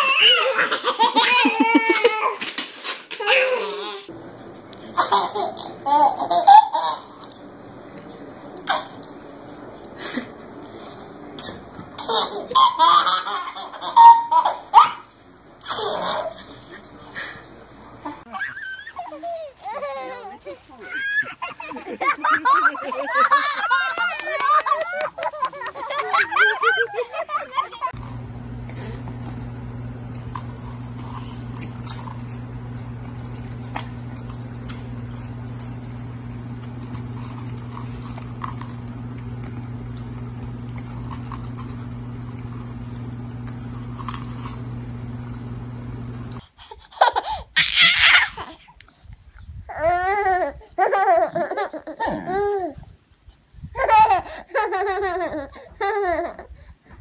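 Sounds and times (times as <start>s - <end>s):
baby giggling: 0.0s - 2.4s, 4.8s - 7.4s, 8.6s - 9.1s, 10.0s - 28.0s, 46.5s - 48.8s, 49.7s - 52.8s, 53.8s - 56.6s
steady low hum: 4.1s - 18.4s, 27.8s - 47.6s.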